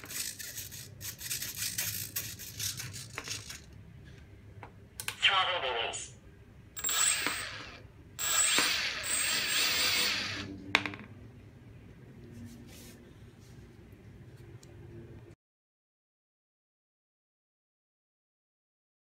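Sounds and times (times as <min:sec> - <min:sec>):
electric motor propeller whine: 0:06.8 - 0:10.6.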